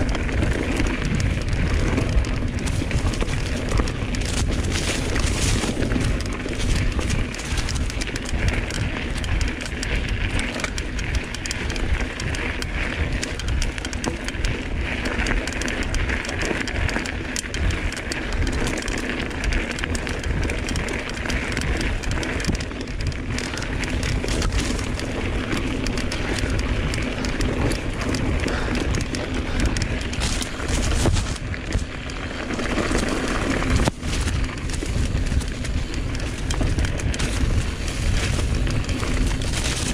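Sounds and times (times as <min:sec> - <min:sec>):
bike frame and chain rattling: 0:00.0 - 0:39.9
bike tyres rolling on dirt: 0:00.0 - 0:39.9
wind on microphone: 0:20.2 - 0:39.9.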